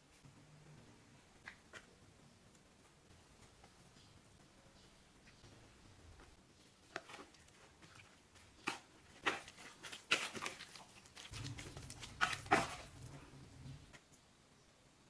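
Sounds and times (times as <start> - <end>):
paddle stirring batter in bowl: 6.2 - 13.9.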